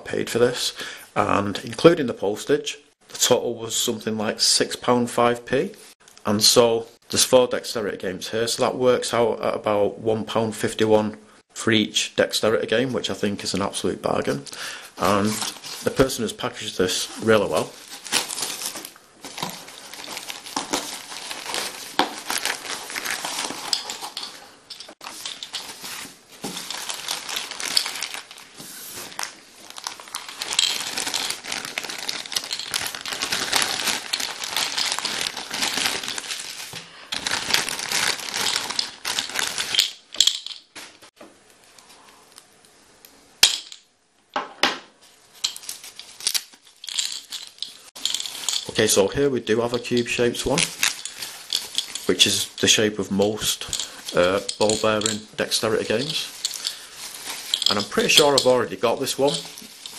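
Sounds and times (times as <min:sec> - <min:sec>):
plastic wrap crinkling: 0:15.0 - 0:16.2, 0:16.8 - 0:41.1, 0:45.3 - 0:59.9.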